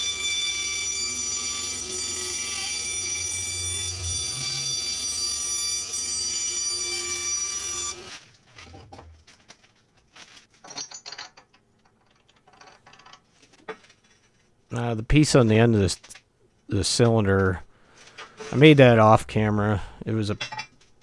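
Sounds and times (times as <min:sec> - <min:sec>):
bandsaw cutting wood: 0:00.0 - 0:08.2
steel parts clinking: 0:10.6 - 0:14.4, 0:20.4 - 0:20.9.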